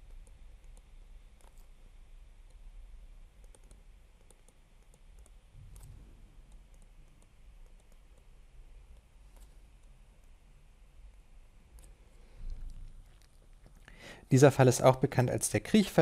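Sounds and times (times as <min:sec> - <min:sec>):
low steady hum: 0:00.0 - 0:16.0
stylus tapping on tablet screen: 0:03.4 - 0:08.3.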